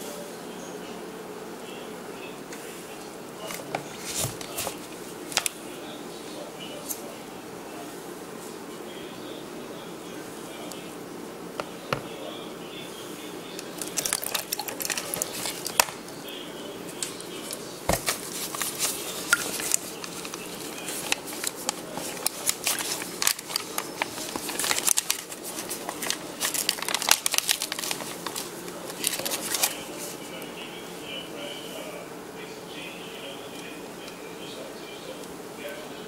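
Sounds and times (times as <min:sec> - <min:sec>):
plastic bag crinkling: 0:13.6 - 0:16.0, 0:17.0 - 0:30.2.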